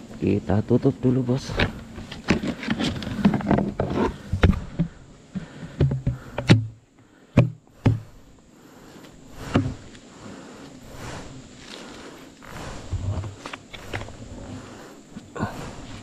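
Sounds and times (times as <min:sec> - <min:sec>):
rustling: 0:01.4 - 0:06.4, 0:08.0 - 0:16.0
plastic bucket knocks and clicks: 0:05.8 - 0:06.8, 0:07.4 - 0:08.0.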